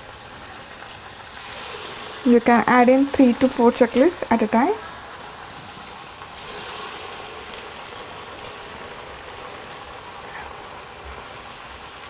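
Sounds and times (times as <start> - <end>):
food deep frying in oil: 0.0 - 12.0
hiss of food slipped into oil: 1.0 - 2.3, 4.8 - 11.8.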